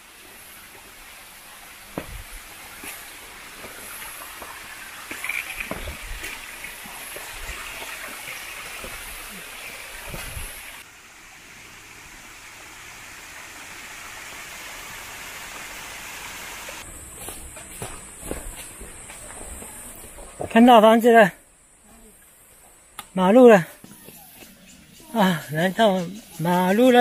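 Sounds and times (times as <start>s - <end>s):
steady outdoor hiss: 0.0s - 27.0s
footsteps on forest trail: 0.3s - 10.8s, 16.8s - 21.0s, 22.4s - 27.0s.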